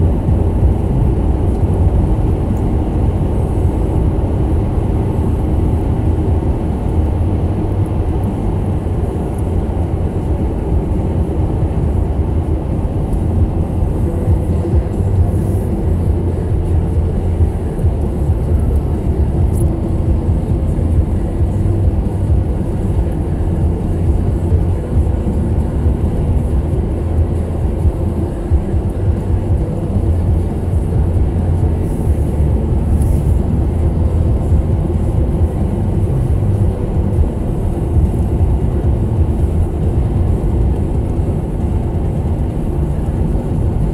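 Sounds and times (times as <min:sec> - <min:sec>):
car tyre and engine rumble: 0:00.0 - 0:43.9.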